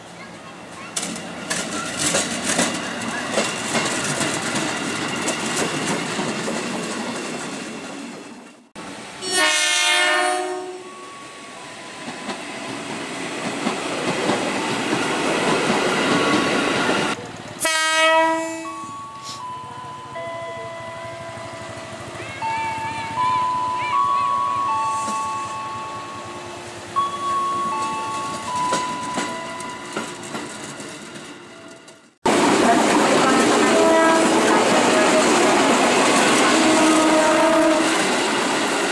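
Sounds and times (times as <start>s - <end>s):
train rumble and wheel clatter: 0.0s - 38.9s
train horn blast: 9.2s - 11.0s, 17.6s - 18.9s, 33.5s - 35.4s, 36.4s - 38.1s.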